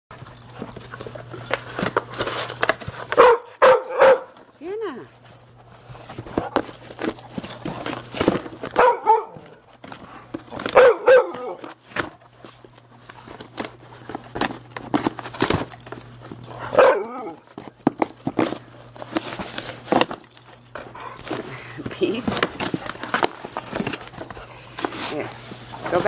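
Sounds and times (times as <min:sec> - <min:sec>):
dog barking: 0:03.2 - 0:04.4, 0:08.7 - 0:09.6, 0:10.7 - 0:11.6, 0:16.7 - 0:17.4.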